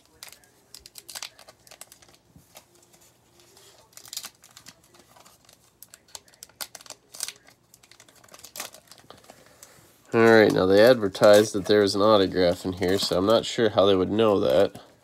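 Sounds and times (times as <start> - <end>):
papery clicks and snaps: 0.0 - 9.7
card pack rustling: 0.0 - 14.9.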